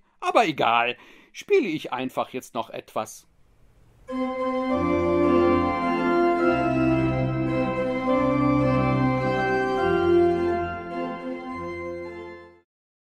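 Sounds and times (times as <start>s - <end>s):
organ playing sustained chords: 4.1s - 12.6s.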